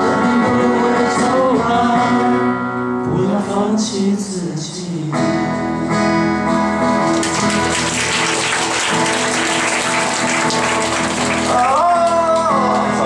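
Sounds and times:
acoustic guitars held chord: 0.0 - 13.0
audience applause: 7.1 - 13.0.

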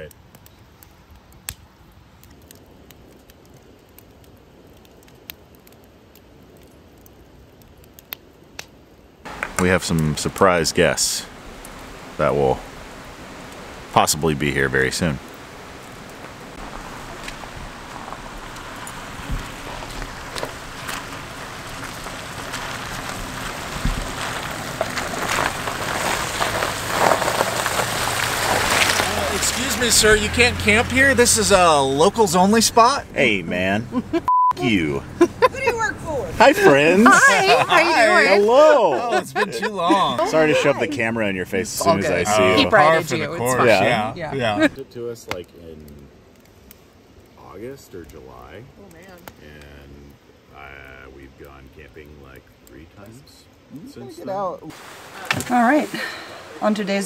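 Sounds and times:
campfire flame rushing: 0.0 - 57.0
fire crackling and popping: 0.0 - 57.0
tyres crunching over snow: 9.3 - 44.8.

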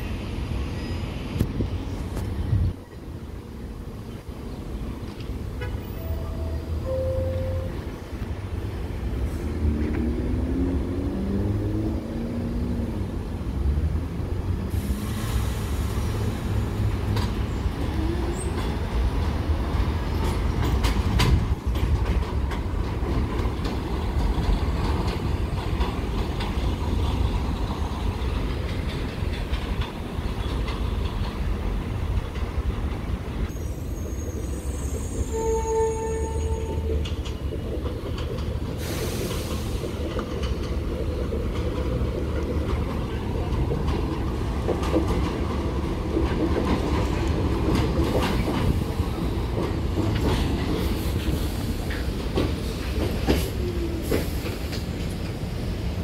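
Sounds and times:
subway train rumble: 0.0 - 56.0
held tone: 6.0 - 7.9
wheels clacking over rail joints: 16.1 - 33.5, 35.4 - 56.0.

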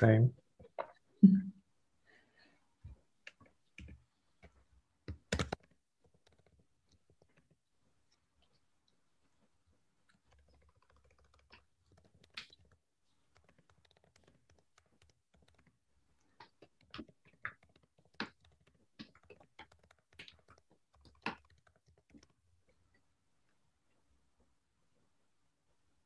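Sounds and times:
keyboard typing: 5.1 - 7.6, 10.1 - 15.8, 16.4 - 22.4.

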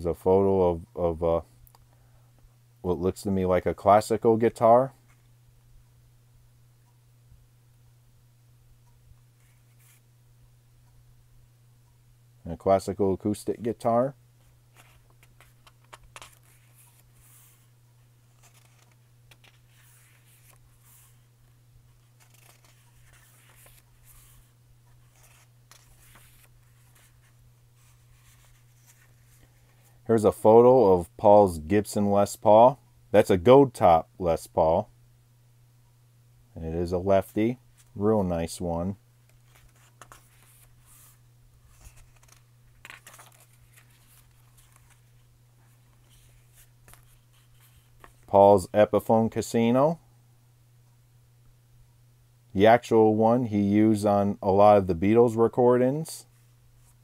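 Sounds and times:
steady low hum: 0.0 - 57.0
paper pages turning: 14.4 - 30.0, 39.2 - 48.3.

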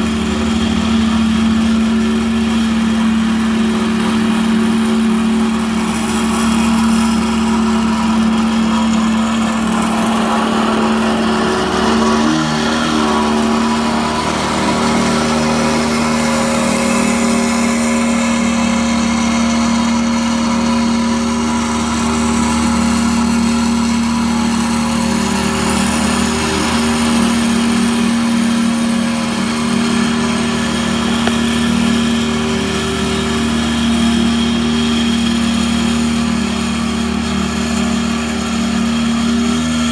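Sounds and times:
small engine humming: 0.0 - 39.9.

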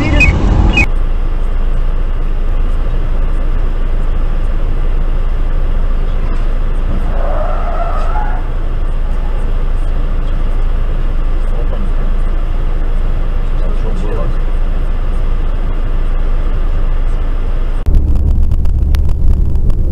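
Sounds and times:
car and road noise: 0.0 - 19.9
tyres squealing: 6.4 - 10.4.

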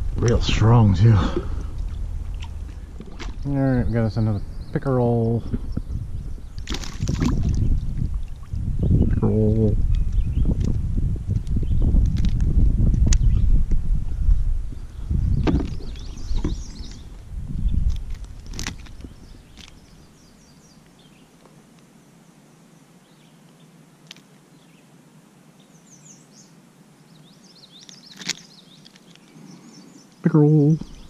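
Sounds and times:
low rumbling: 0.0 - 20.4
small birds chirping: 0.0 - 21.7, 22.6 - 31.0
handling noise: 15.4 - 19.8, 27.8 - 29.3.

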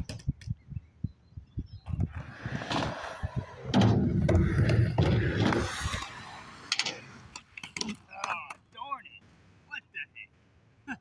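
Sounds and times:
skateboard clacks: 1.9 - 8.7
skateboard rolling on metal ramp: 2.0 - 7.6.

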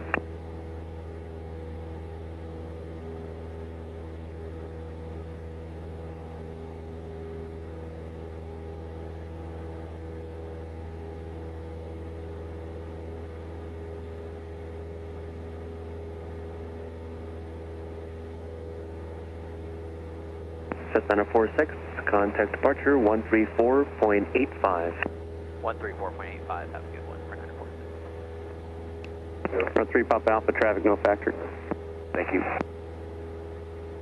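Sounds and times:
light aircraft engine droning: 0.0 - 34.0.

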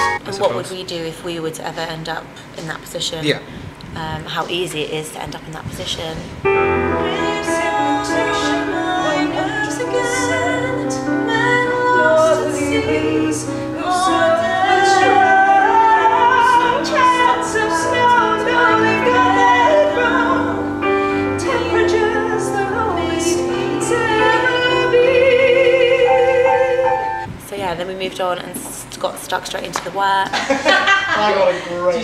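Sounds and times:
several voices singing together: 7.0 - 20.8.

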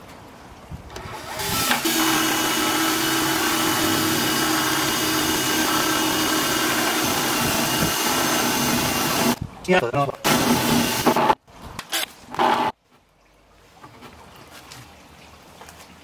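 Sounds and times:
cordless drill boring through plastic: 1.0 - 9.4, 10.2 - 12.7.

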